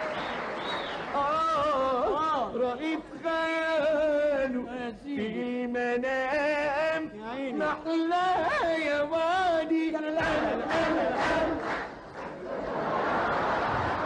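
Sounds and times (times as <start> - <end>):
audience noise: 0.0 - 2.0, 10.2 - 14.0
man singing slow melody: 1.1 - 10.9.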